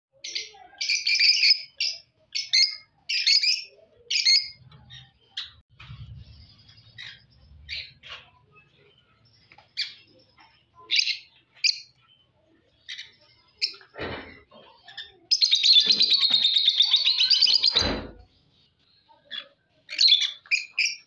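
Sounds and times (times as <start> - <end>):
birds chirping and chattering: 0.1 - 21.0.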